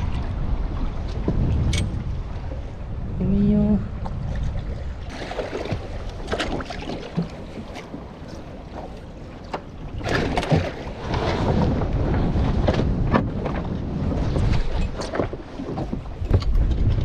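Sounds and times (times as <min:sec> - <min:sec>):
water moving around boat: 0:00.0 - 0:17.0
wind buffeting microphone: 0:00.0 - 0:17.0.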